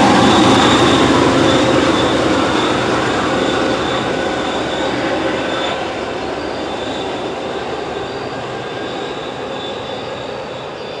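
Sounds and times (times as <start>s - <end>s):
passenger train rumbling on track: 0.0s - 11.0s.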